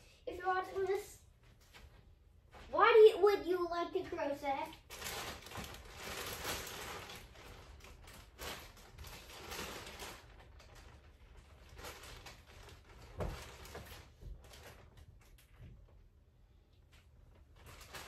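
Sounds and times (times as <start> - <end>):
yarn rustling and handling: 4.5 - 15.8, 17.0 - 18.0.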